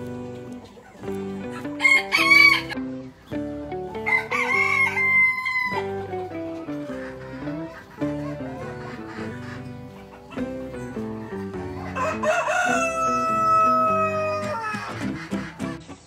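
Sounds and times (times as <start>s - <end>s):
background music: 0.0s - 16.0s
rooster crowing: 1.8s - 2.8s, 4.0s - 6.2s, 11.6s - 15.0s.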